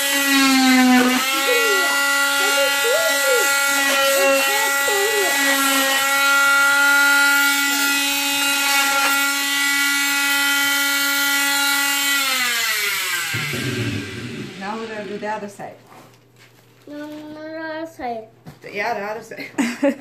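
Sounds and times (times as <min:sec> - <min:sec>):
cast saw whining: 0:00.0 - 0:15.5.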